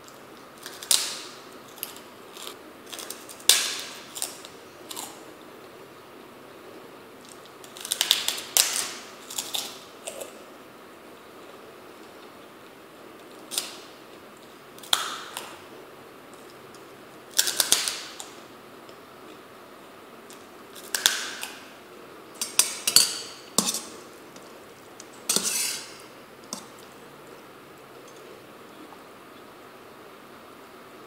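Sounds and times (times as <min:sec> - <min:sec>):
fork clinking in metal pot: 0:22.4 - 0:23.9.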